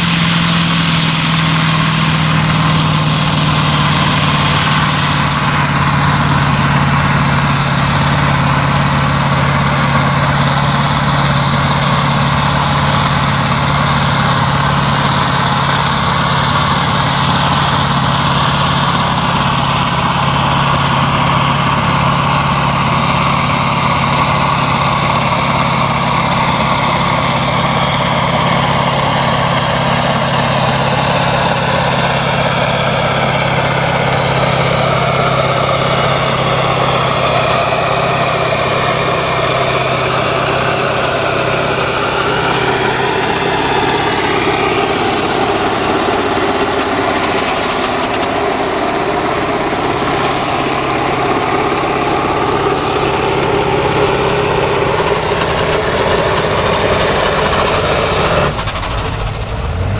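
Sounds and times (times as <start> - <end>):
high whine: 0.0 - 59.9
tractor diesel engine under load: 0.0 - 59.9.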